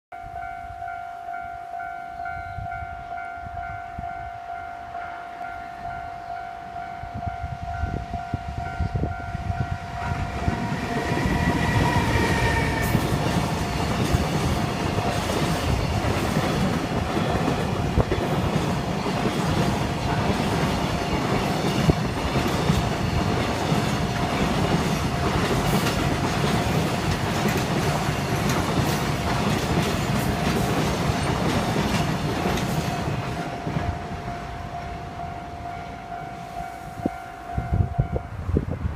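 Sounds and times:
train horn: 0:00.2 - 0:14.2
level-crossing alarm ringing: 0:00.2 - 0:38.4
freight train wagons clattering: 0:10.2 - 0:35.2.

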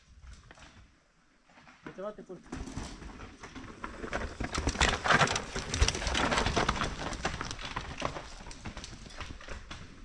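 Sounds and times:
mountain bike rattling over stones: 0:02.4 - 0:10.0.

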